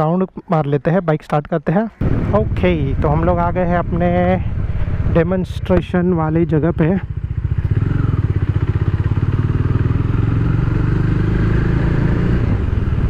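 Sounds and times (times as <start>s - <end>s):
motorcycle engine riding off: 2.0s - 13.0s.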